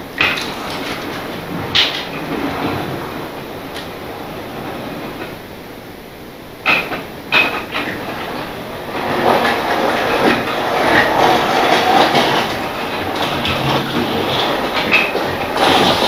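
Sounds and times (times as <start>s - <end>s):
model train wheels clicking: 6.7s - 16.0s.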